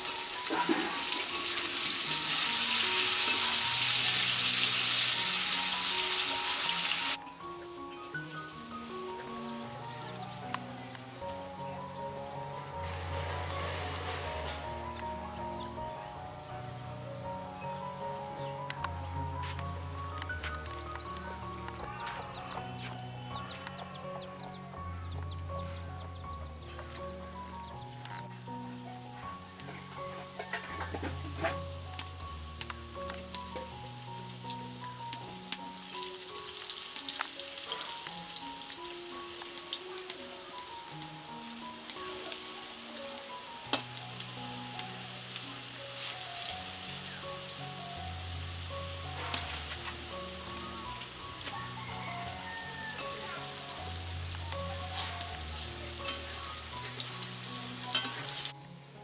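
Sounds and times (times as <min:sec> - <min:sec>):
food sizzling in oil: 0:00.0 - 0:07.2, 0:26.8 - 0:59.0
soft background music: 0:00.0 - 0:59.0.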